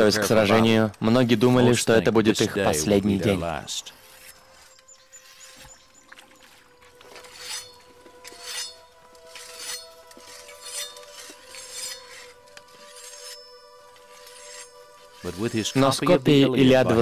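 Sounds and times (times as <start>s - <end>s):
held musical drone: 3.2s - 17.0s
short metallic scraping strokes: 3.8s - 5.8s, 7.1s - 16.0s.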